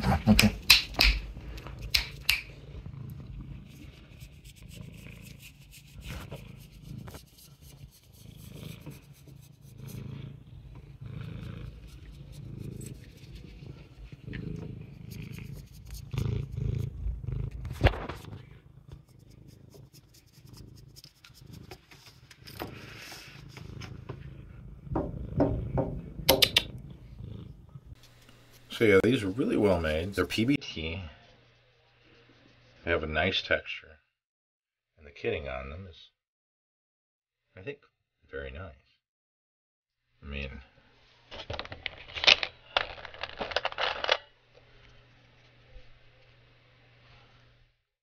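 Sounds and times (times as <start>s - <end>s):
cat purring: 1.4s - 30.6s
sharp clicks and knocks: 25.0s - 26.8s.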